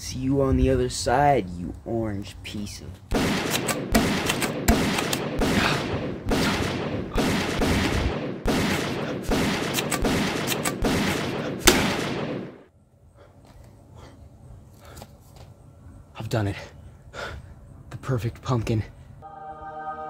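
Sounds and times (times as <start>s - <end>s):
rapid gunshots: 3.1s - 12.7s.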